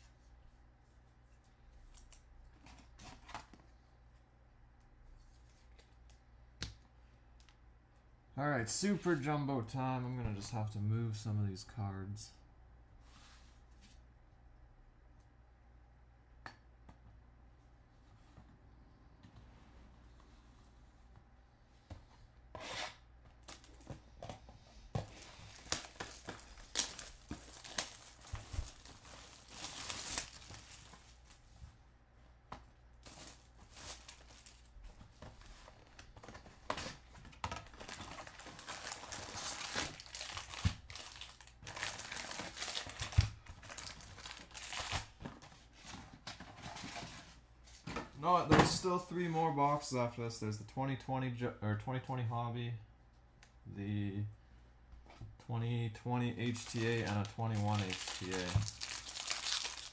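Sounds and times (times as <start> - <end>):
card packs being stacked: 23.4 - 31.2
plastic wrap crinkling and tearing: 25.1 - 31.4, 33.0 - 34.8, 37.6 - 45.2, 56.4 - 59.9.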